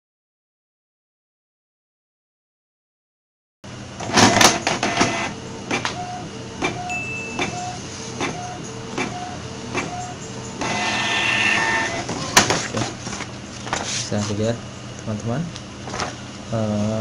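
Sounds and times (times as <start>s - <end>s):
print head carriage shuttling: 4.0s - 6.0s, 7.4s - 14.0s
printer clicks: 4.0s - 6.0s, 7.4s - 12.6s
printer motor whir: 4.0s - 14.1s.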